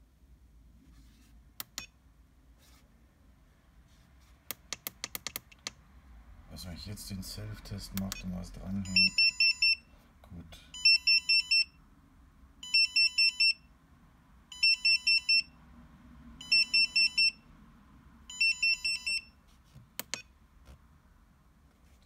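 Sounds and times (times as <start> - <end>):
sharp clicks: 4.5 - 5.8
charger high-pitched beeps: 8.0 - 9.8, 16.4 - 17.4.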